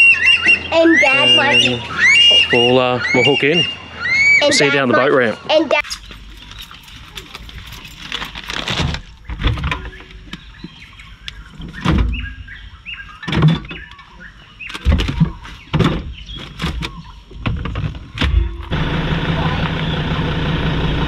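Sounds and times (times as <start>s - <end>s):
birds chirping: 0.0s - 8.4s, 9.0s - 18.7s
sharp knocks and clunks: 14.7s - 18.7s.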